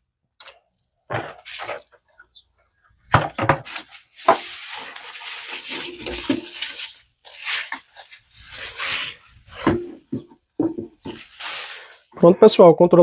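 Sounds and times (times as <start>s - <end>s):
bubble wrap rustling and crinkling: 3.6s - 12.1s.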